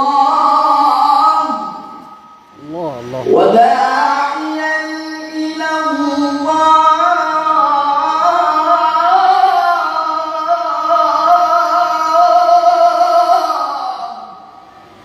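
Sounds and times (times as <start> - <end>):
man reciting melodically: 2.6 - 14.3.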